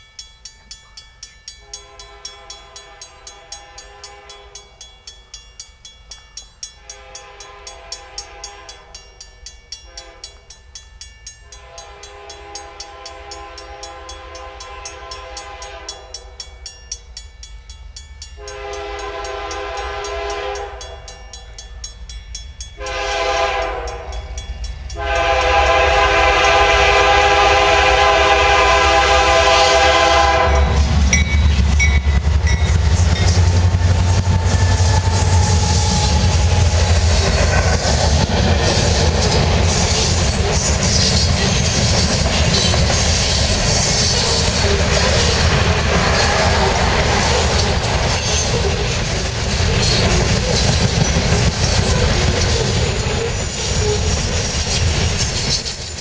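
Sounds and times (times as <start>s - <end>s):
train passing with low rumble: 0.0s - 56.0s
locomotive air horn: 1.6s - 4.6s, 6.9s - 9.0s, 9.9s - 10.3s, 11.6s - 16.2s, 18.4s - 21.1s, 22.8s - 24.2s, 25.0s - 30.9s, 34.0s - 37.3s.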